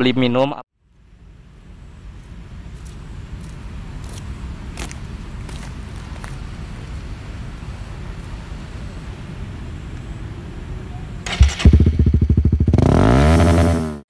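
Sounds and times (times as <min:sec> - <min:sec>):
low steady background noise: 0:00.0 - 0:12.8
motorcycle engine starting and running: 0:11.2 - 0:14.0.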